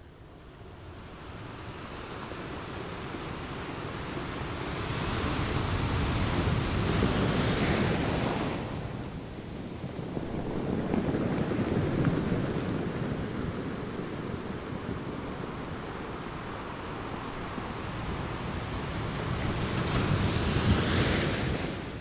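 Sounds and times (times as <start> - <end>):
wind: 0.0 - 22.0
ocean surf rushing: 2.4 - 22.0.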